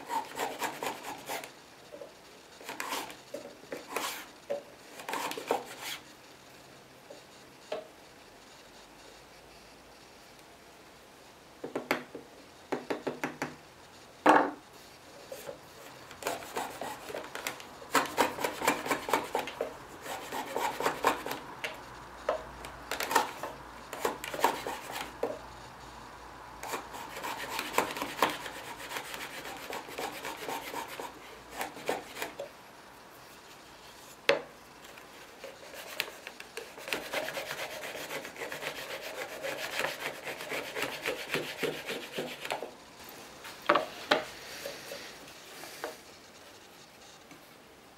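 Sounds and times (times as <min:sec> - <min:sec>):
router plane scraping wood: 0:35.6 - 0:42.7.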